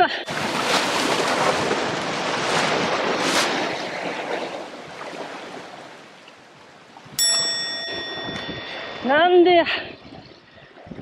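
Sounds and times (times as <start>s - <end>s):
sea surf washing against rocks: 0.2s - 11.0s
wind on microphone: 6.9s - 11.0s.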